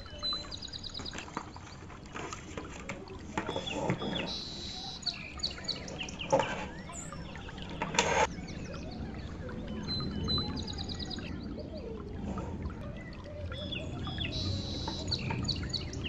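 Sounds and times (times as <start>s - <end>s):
birds chirping: 0.0s - 16.0s
clicks and knocks: 5.9s - 8.3s.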